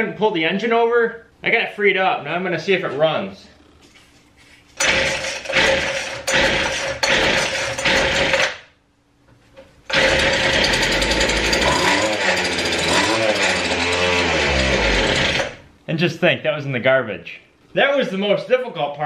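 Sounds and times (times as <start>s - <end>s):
string trimmer engine running: 4.8s - 8.5s, 9.9s - 15.6s.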